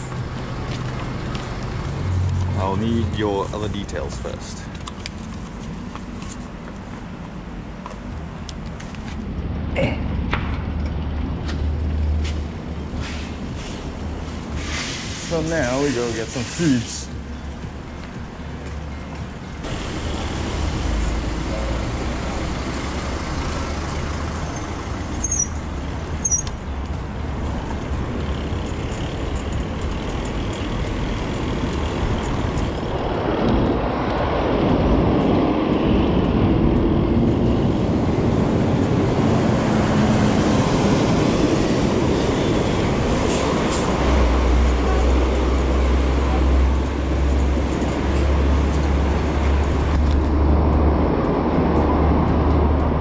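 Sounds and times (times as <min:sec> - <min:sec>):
road noise: 0:00.0 - 0:53.0
wind rushing over microphone: 0:29.1 - 0:44.5.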